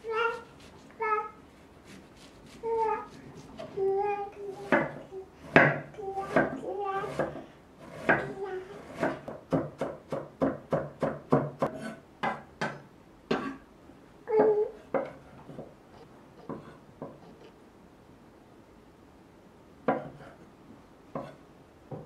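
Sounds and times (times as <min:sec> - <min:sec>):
knife chopping on wooden board: 0:04.6 - 0:13.5.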